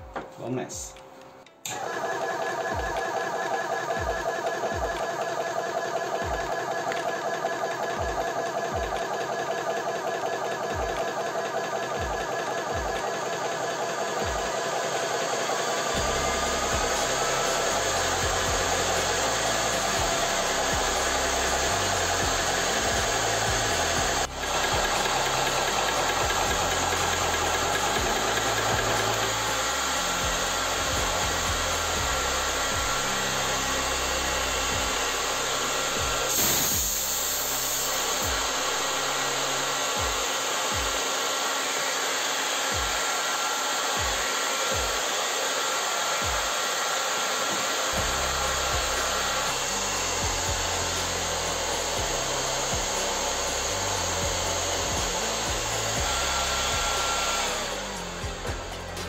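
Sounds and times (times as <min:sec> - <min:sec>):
air compressor pumping: 0:01.6 - 0:59.0
cooling fan running: 0:01.7 - 0:59.0
air hissing: 0:32.2 - 0:39.7.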